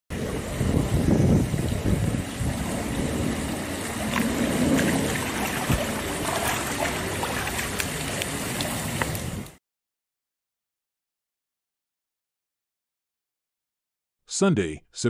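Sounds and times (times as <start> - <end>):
steady noisy rush: 0.1 - 9.5
person wading through water: 3.4 - 9.3
small splashes and drips: 3.6 - 9.6.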